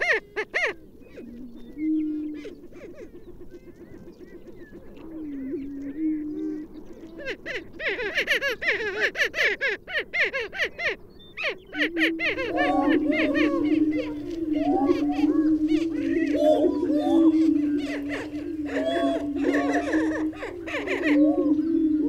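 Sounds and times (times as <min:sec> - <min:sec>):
cackling and whooping birds: 0:00.0 - 0:22.0
low booming bird calls: 0:10.8 - 0:22.0.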